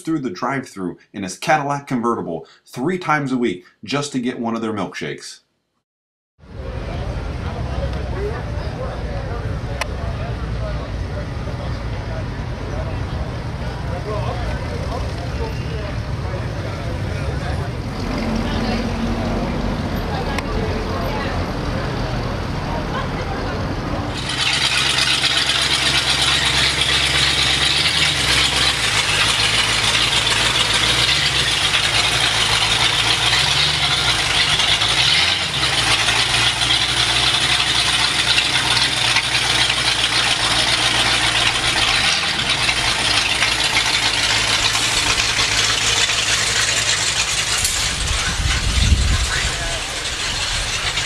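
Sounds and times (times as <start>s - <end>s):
car engine idling: 6.4s - 51.0s.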